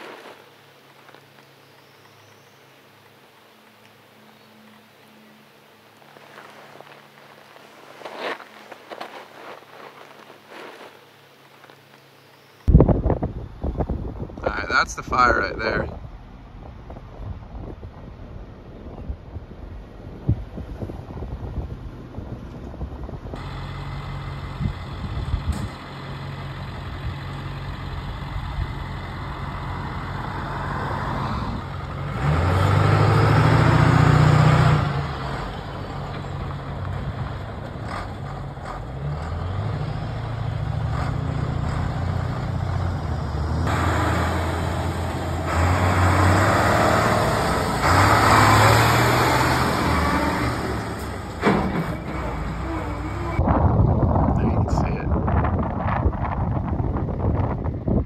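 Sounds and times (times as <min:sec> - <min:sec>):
truck engine driving past: 0:21.7 - 0:53.8.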